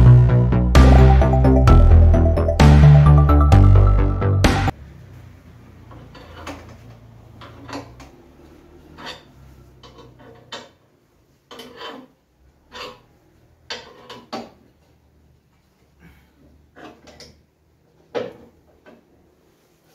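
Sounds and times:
metal clamps clicking and clanking: 5.9 - 8.3.

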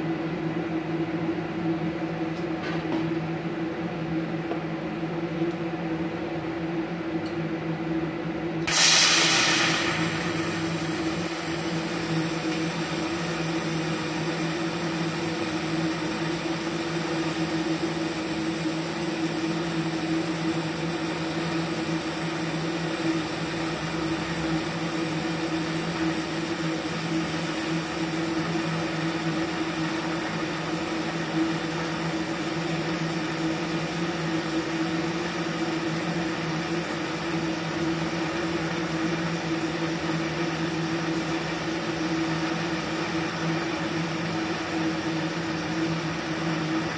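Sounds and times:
welding arc humming and hissing: 8.6 - 46.9.

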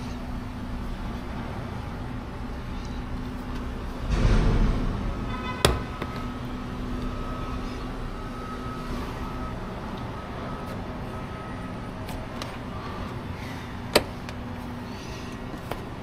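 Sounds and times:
dull thump: 4.1 - 6.4.

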